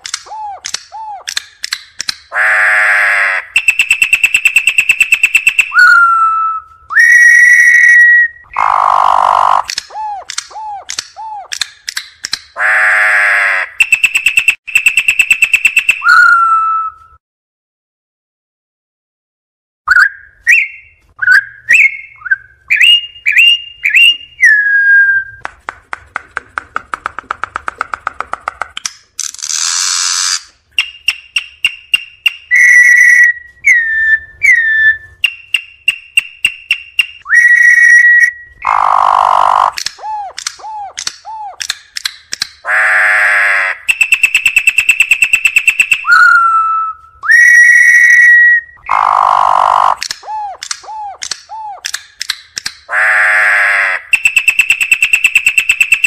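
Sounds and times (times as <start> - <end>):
harsh buzzy bird calls: 2.3 - 10.0, 12.6 - 14.0, 37.4 - 39.8, 42.6 - 44.1, 47.4 - 50.0, 52.9 - 54.6
bird whistling song: 3.6 - 8.7, 13.8 - 17.2, 19.9 - 25.4, 30.8 - 38.7, 43.9 - 49.1, 54.1 - 56.0.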